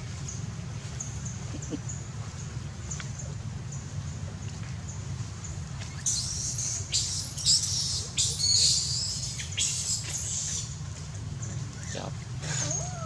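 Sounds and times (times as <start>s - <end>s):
steady low rumble: 0.0s - 6.0s
baby monkey screaming: 5.9s - 10.8s, 12.5s - 13.0s.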